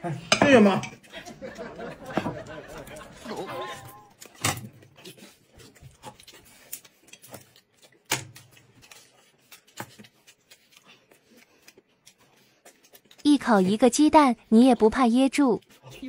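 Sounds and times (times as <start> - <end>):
chopsticks tapping plates: 0.3 - 10.6.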